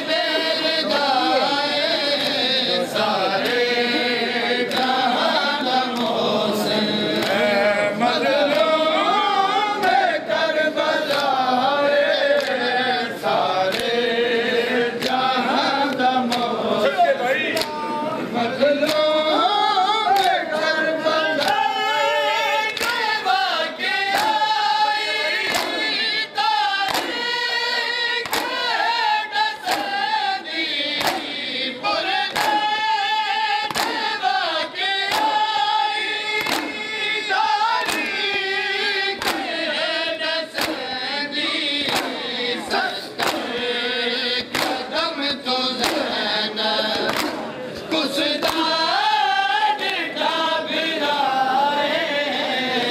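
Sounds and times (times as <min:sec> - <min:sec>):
crowd of men chanting: 0:00.0 - 0:52.9
hands slapping chests: 0:04.6 - 0:05.0, 0:08.4 - 0:08.8, 0:11.0 - 0:11.4, 0:12.3 - 0:12.7, 0:13.7 - 0:14.0, 0:14.9 - 0:15.2, 0:15.8 - 0:16.5, 0:21.2 - 0:21.6, 0:22.6 - 0:23.1, 0:24.0 - 0:24.5, 0:25.4 - 0:27.4, 0:28.2 - 0:31.4, 0:32.2 - 0:32.8, 0:33.6 - 0:34.3, 0:35.0 - 0:35.6, 0:36.3 - 0:36.9, 0:37.7 - 0:38.5, 0:39.2 - 0:39.6, 0:40.4 - 0:41.0, 0:41.8 - 0:42.4, 0:43.2 - 0:43.7, 0:44.4 - 0:45.0, 0:45.8 - 0:47.6, 0:48.4 - 0:48.7.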